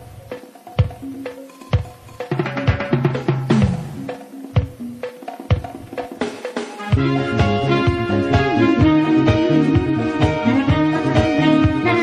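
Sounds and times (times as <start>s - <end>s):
sharp regular drum hits: 0.0s - 7.1s.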